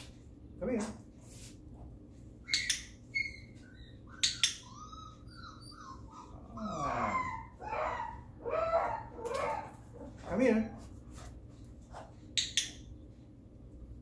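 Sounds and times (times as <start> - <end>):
puppy whining: 2.4 - 10.9.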